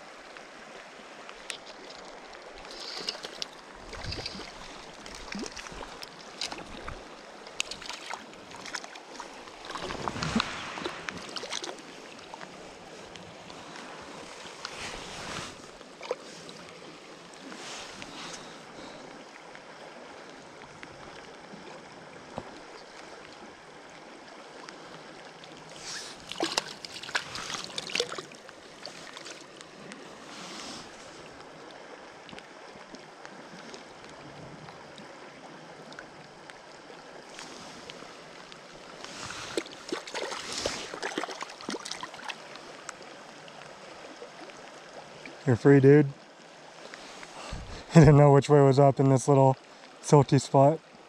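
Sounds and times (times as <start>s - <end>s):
creek running: 0.0s - 51.0s.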